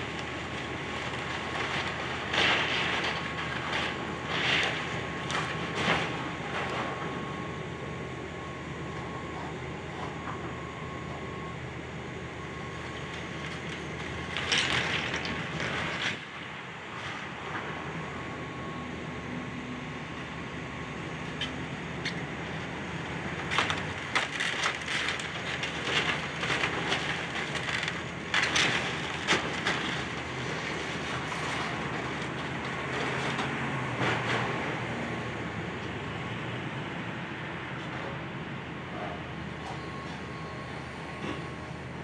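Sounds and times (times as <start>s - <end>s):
debris cracking and crunching: 0.0s - 7.0s, 12.9s - 16.4s, 23.4s - 34.4s
diesel engine running: 0.0s - 42.0s.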